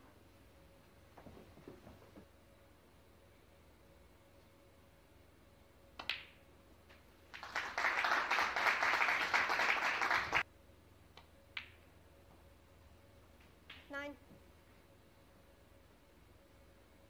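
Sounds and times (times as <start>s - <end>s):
snooker balls clicking: 6.0s - 7.0s, 11.2s - 11.9s
audience applauding: 7.3s - 10.4s.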